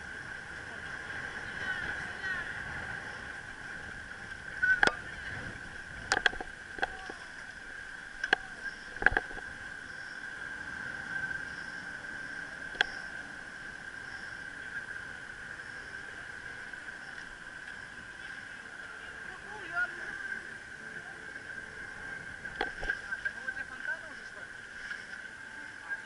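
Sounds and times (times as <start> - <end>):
bicycle rolling over asphalt: 0.0 - 26.0
steady whine: 0.0 - 26.0.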